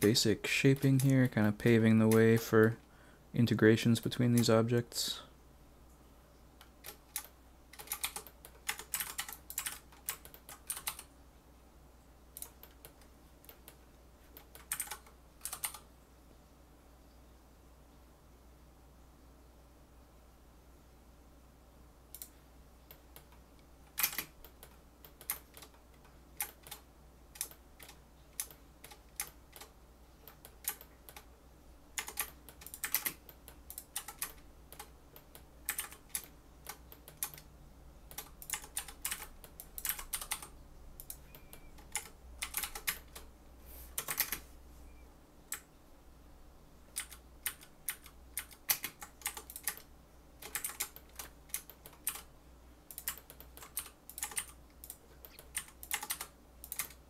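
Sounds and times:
low fan hum: 0.0 - 57.0
keyboard keys clicking: 6.8 - 11.1, 14.4 - 15.8, 24.0 - 25.8, 32.0 - 37.5, 38.1 - 43.3, 47.0 - 52.3, 52.9 - 57.0.

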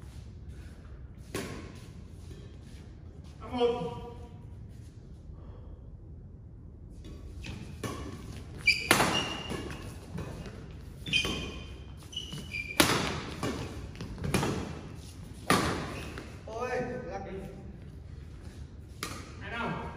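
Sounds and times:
shoes squeaking on court: 7.4 - 16.4
racket striking shuttlecock: 7.8 - 10.4.

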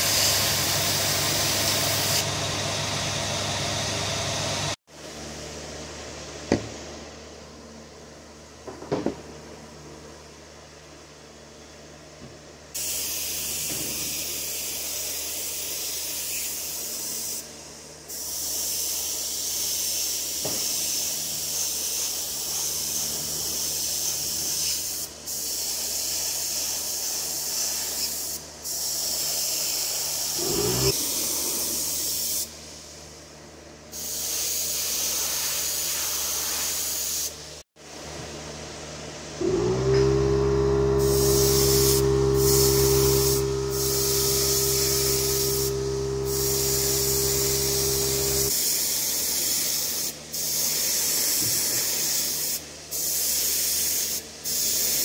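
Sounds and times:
airbrush spraying hiss: 18.1 - 32.9, 33.9 - 37.3, 40.7 - 55.0.

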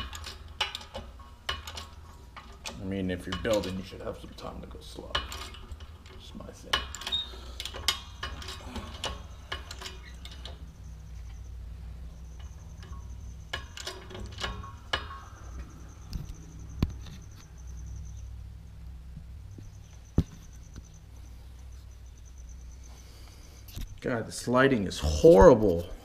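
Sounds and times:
metallic clicks and knocks: 0.0 - 18.2
steady low hum: 0.0 - 26.0.

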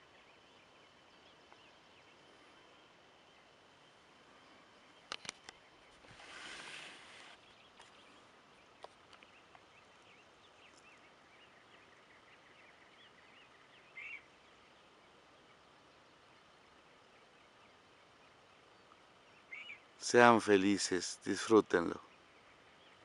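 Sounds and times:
distant birds chirping: 0.0 - 23.0
short rush of noise: 6.0 - 7.4.

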